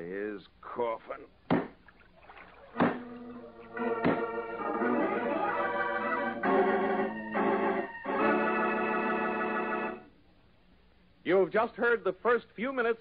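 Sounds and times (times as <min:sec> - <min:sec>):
dramatic organ chords: 0:02.7 - 0:10.1.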